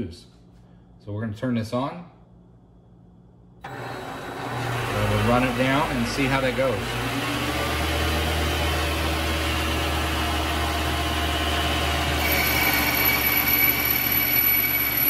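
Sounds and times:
carriage feed whine: 0:03.6 - 0:15.0
lathe spindle humming: 0:03.7 - 0:15.0.

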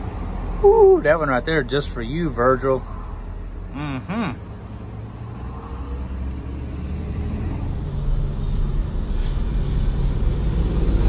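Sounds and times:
road and engine rumble in a cab: 0:00.0 - 0:11.0.

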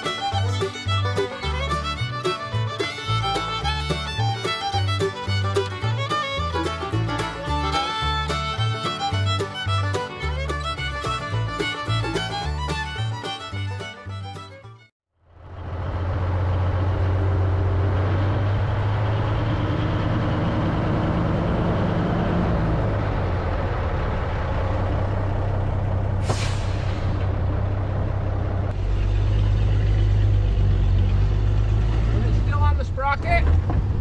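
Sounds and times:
truck engine humming: 0:00.0 - 0:34.0
brake air hiss: 0:26.2 - 0:27.3.

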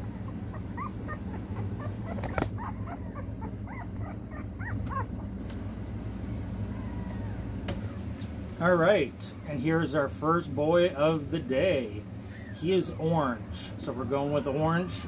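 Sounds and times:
puppy whimpering: 0:00.0 - 0:05.4, 0:06.2 - 0:08.1, 0:14.0 - 0:15.0
steady low hum: 0:00.0 - 0:15.0.

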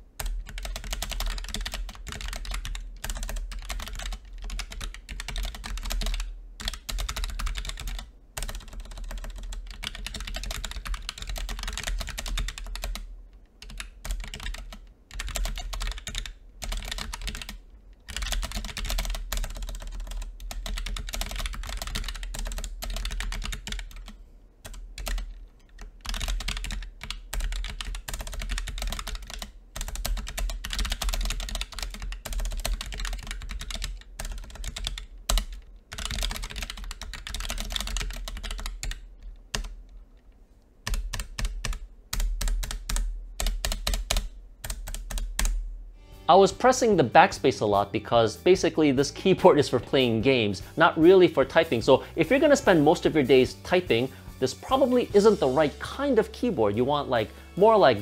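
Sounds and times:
fast keyboard typing: 0:00.2 - 0:39.9, 0:40.8 - 0:45.6.

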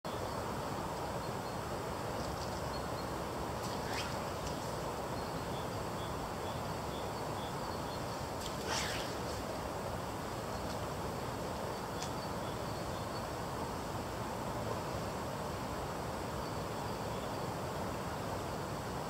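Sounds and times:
fishing line swishing: 0:03.6 - 0:04.9, 0:08.4 - 0:09.6.

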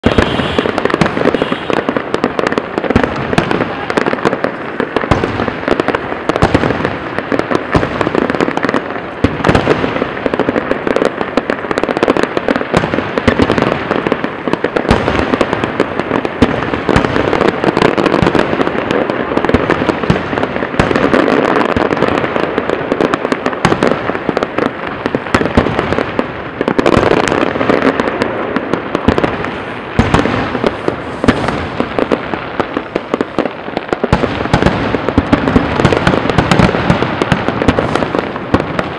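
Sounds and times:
firework shells bursting: 0:00.0 - 0:11.4.

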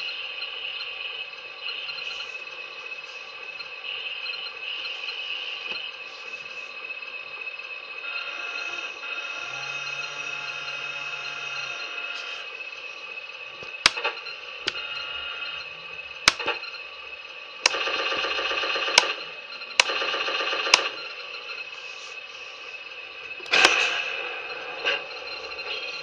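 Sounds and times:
engine idle through small speaker: 0:00.0 - 0:26.0
sharp clicks: 0:13.6 - 0:14.1, 0:16.3 - 0:16.6, 0:17.6 - 0:17.9, 0:18.9 - 0:19.2, 0:19.8 - 0:20.0, 0:20.7 - 0:20.9, 0:23.4 - 0:23.8.

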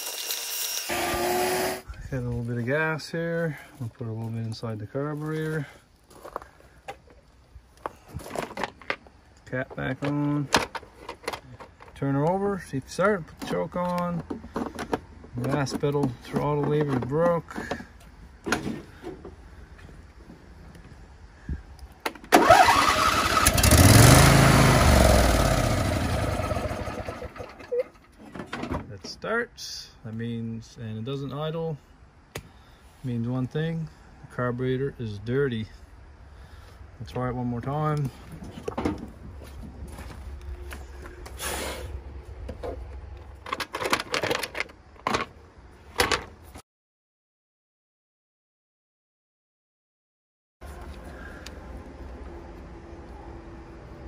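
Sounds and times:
lawn tractor engine cranking and catching: 0:08.2 - 0:12.4, 0:22.0 - 0:29.1, 0:42.5 - 0:46.4.

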